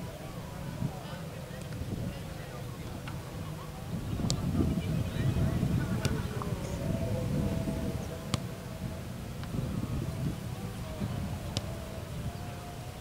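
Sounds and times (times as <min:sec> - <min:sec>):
distant voices: 0:00.0 - 0:13.0
faint distant tones: 0:00.0 - 0:13.0
wind on microphone: 0:00.0 - 0:13.0.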